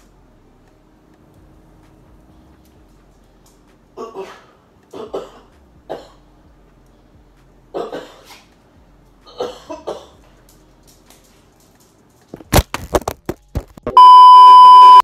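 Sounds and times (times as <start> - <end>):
cough-like bursts: 4.0 - 6.2, 7.8 - 8.4, 9.3 - 10.2.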